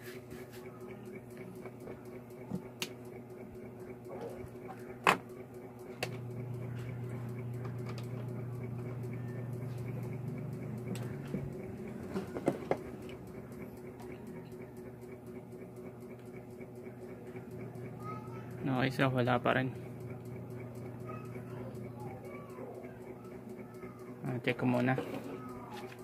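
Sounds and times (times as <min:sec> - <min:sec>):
low electrical hum: 0:00.0 - 0:26.0
clicks and knocks of handling: 0:12.1 - 0:13.2.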